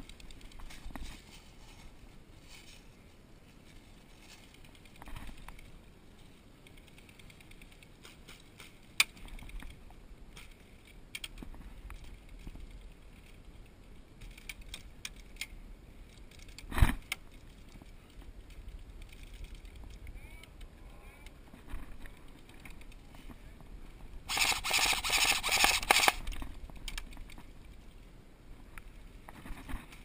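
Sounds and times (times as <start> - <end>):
rattling of handled gear: 10.4 - 20.1, 24.3 - 28.0
sharp click: 24.3 - 26.3.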